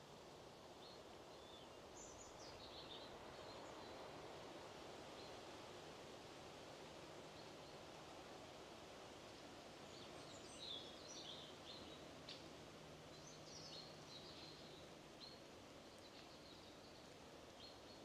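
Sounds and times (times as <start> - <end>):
steady low hiss: 0.0 - 18.0.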